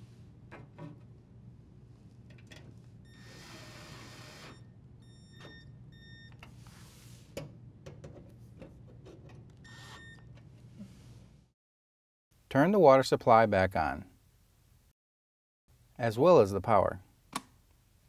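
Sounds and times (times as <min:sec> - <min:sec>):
cordless drill whining: 0:03.1 - 0:04.6.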